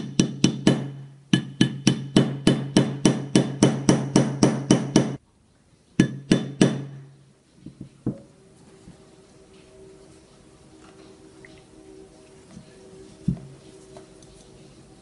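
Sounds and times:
hammer tapping on metal: 0.0s - 5.2s, 6.0s - 7.1s.

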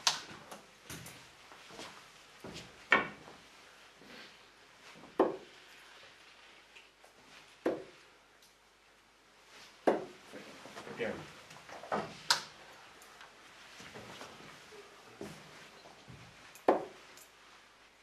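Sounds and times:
darts thudding into dartboard: 5.2s - 5.5s, 7.6s - 7.9s, 9.8s - 10.2s, 16.6s - 17.0s.

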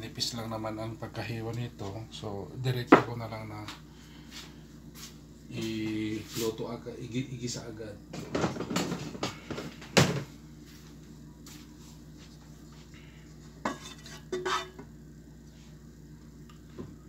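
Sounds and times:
utensils clinking against a pot: 13.7s - 14.8s.

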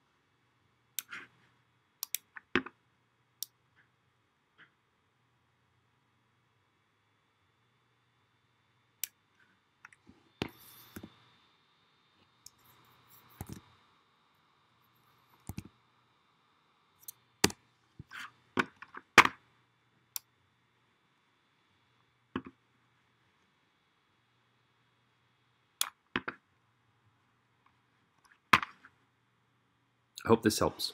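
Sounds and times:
computer mouse clicks: 1.0s - 1.3s, 2.0s - 2.7s, 9.8s - 11.1s, 12.4s - 13.8s, 15.3s - 15.7s
keyboard key presses: 13.3s - 13.6s.

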